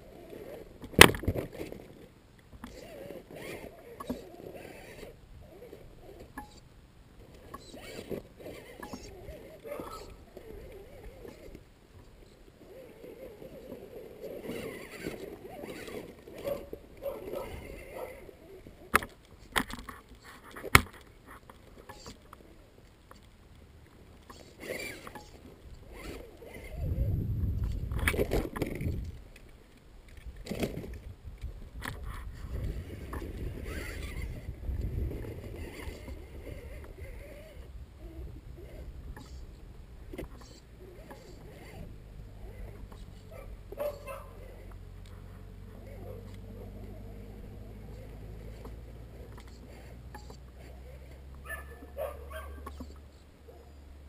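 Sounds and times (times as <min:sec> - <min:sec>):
handling noise on rock: 0:00.3 - 0:12.4, 0:13.3 - 0:37.7
wind rumbling on microphone: 0:25.7 - 0:29.4, 0:30.2 - 0:40.3.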